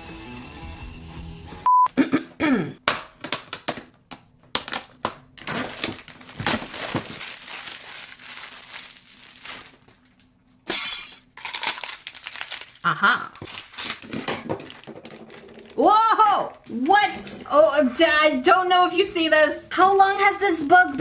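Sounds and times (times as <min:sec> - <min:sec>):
plastic packaging crinkling: 0:04.6 - 0:10.3, 0:11.4 - 0:15.8
plastic parts clicking and clattering: 0:13.4 - 0:15.8.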